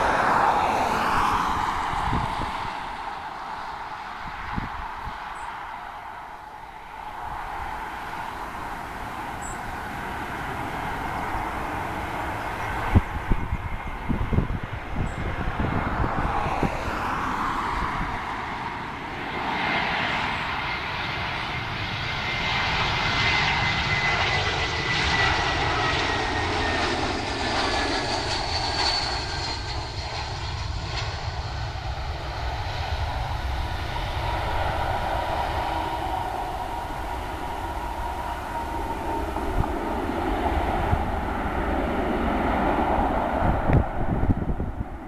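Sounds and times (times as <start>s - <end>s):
jet airliner passing overhead: 0.0s - 45.0s
high engine whine falling in pitch: 22.2s - 45.0s.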